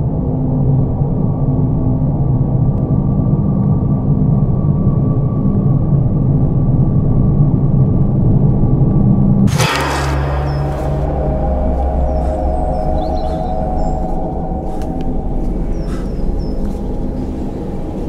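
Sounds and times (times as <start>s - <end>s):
low rumbling drone: 0.0s - 18.0s
sudden loud stinger hit: 9.5s - 15.4s
faint high held tone: 9.5s - 15.9s.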